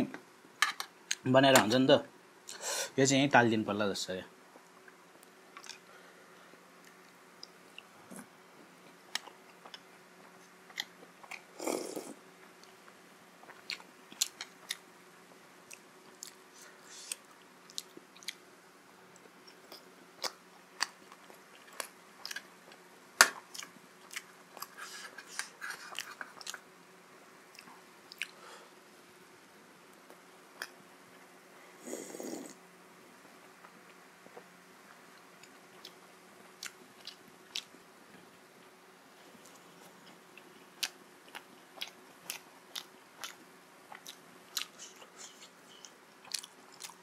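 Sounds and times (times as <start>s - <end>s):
slurping soup: 11.6s - 12.2s
chewing with mouth clicks: 13.4s - 14.8s, 15.6s - 16.4s, 17.0s - 18.4s, 23.4s - 26.7s, 27.5s - 28.4s, 35.3s - 37.8s, 39.4s - 47.0s.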